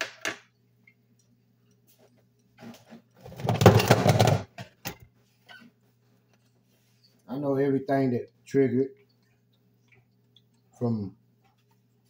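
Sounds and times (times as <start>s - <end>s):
household objects rustling and clattering: 1.9s - 7.2s.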